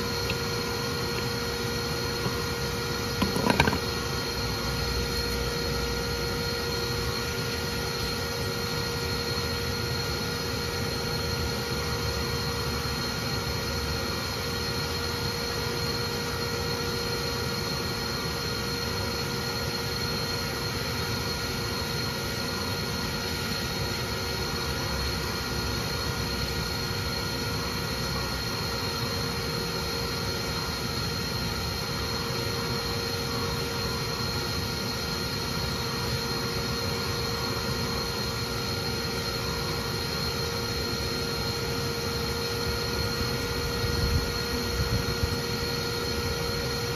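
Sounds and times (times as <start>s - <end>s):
vacuum motor whining: 0.0s - 10.1s.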